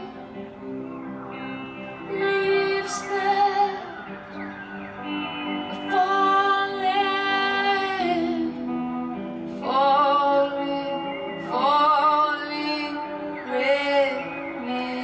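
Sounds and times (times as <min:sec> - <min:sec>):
woman singing long notes: 0:05.7 - 0:08.9.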